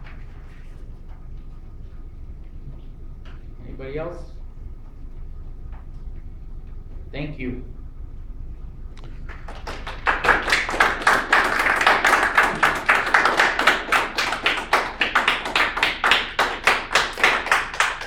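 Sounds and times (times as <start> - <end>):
audience applauding: 9.0 - 18.0.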